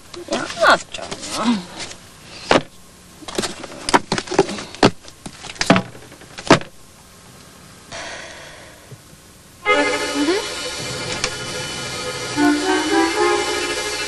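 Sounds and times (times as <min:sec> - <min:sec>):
books knocking and thumping: 0:01.0 - 0:02.7, 0:03.3 - 0:06.8.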